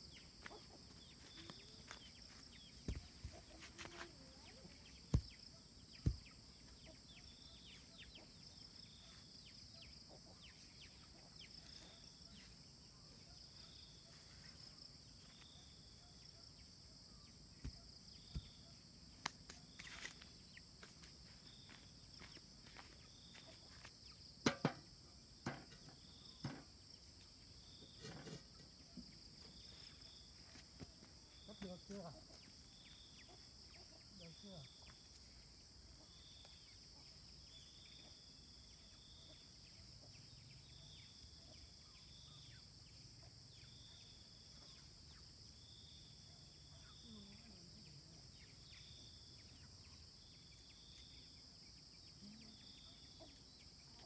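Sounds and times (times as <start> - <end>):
crickets and insects chirping: 0.0 - 54.0
stones knocking on ground: 24.4 - 25.8
metal pot set down on stones: 24.4 - 26.7.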